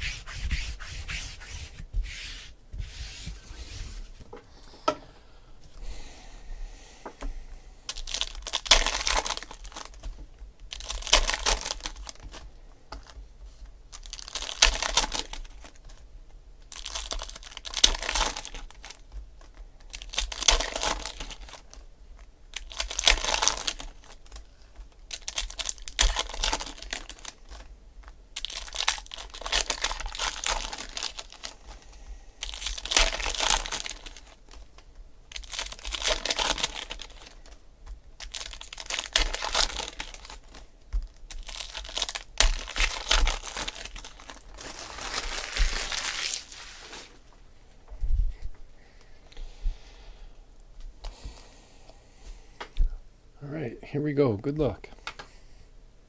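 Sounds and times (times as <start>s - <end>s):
foil wrappers tearing and crinkling: 7.9s - 12.5s, 13.9s - 16.0s, 16.6s - 47.3s.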